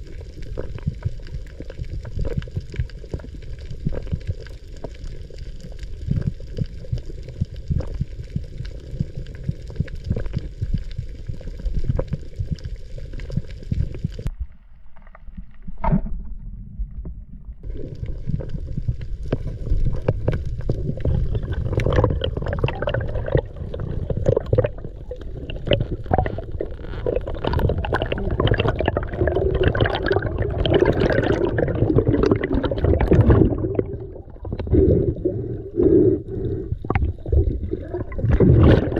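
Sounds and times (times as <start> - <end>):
bubbling and churning water: 0.0 - 38.9
underwater rushing water: 17.6 - 38.9.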